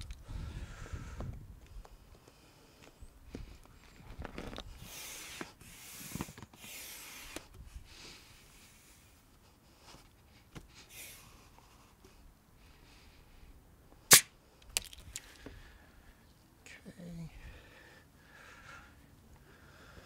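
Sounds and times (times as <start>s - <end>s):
pump hose rubbing and hissing: 4.7s - 7.5s.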